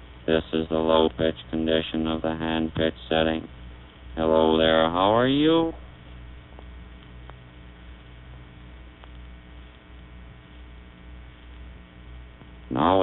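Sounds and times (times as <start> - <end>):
background hiss: 0.0 - 13.0
electrical mains hum: 0.0 - 13.0
faint clicks: 6.5 - 7.5, 8.3 - 9.8.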